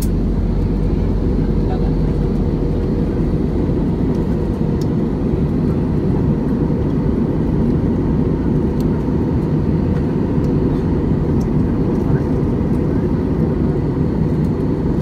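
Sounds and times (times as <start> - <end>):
jet engines and airflow rumble: 0.0 - 15.0.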